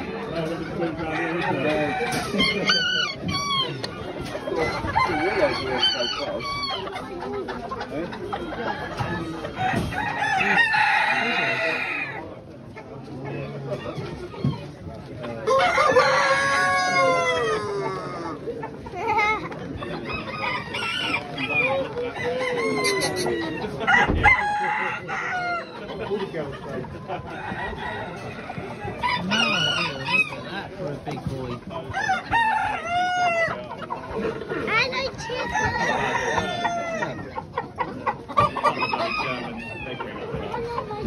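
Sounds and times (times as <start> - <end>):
roosters crowing: 0.0 - 7.1, 8.6 - 12.4, 15.3 - 18.6, 19.9 - 26.1, 27.1 - 30.7, 31.8 - 34.3, 35.2 - 37.3, 37.9 - 40.4
hens clucking: 0.0 - 41.0
thump: 24.1 - 24.3.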